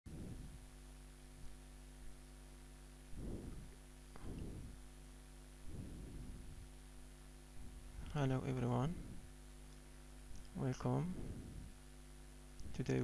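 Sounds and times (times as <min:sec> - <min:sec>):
dull low thumps: 0:00.1 - 0:00.7, 0:03.1 - 0:04.8, 0:05.6 - 0:06.8, 0:11.0 - 0:11.8
low electrical hum: 0:00.1 - 0:13.0.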